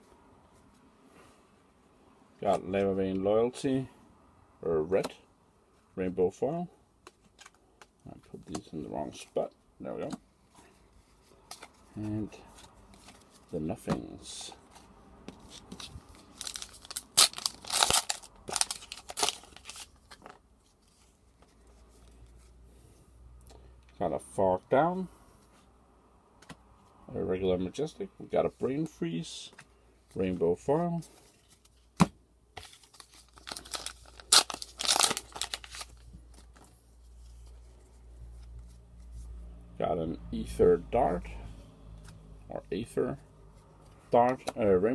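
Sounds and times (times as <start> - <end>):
foil wrapper crinkling: 16.1 - 20.4, 32.6 - 36.6.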